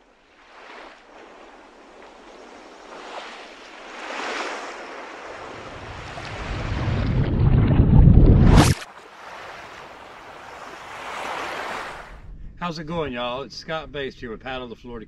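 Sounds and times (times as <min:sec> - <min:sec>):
underwater rushing wash: 0:00.4 - 0:12.2
deep rumble: 0:06.3 - 0:08.8.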